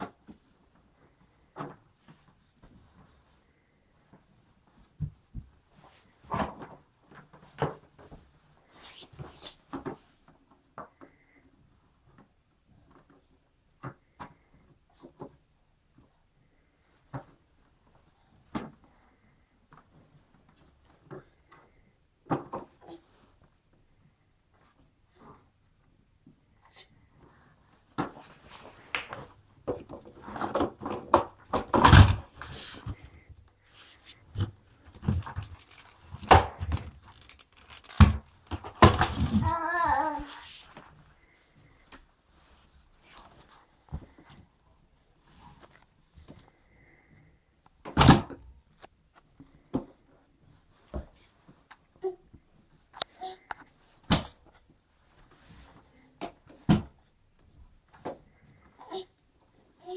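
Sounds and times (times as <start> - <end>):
plastic knocks and clatter: 29.0 - 33.2, 34.3 - 39.4.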